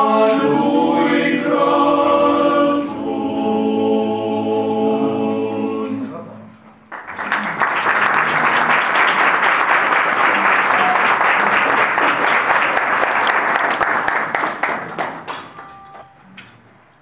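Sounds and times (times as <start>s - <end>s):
crowd applauding: 6.8s - 16.1s.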